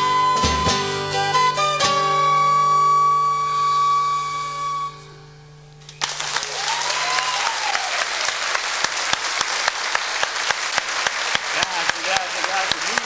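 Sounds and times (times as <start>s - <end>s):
flute and accordion chord: 0.0s - 5.4s
audience applause: 6.0s - 13.0s.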